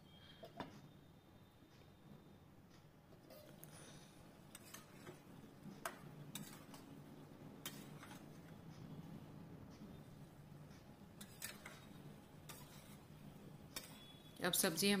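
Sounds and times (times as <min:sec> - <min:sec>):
spoon clinking against metal pan: 0:13.8 - 0:14.3.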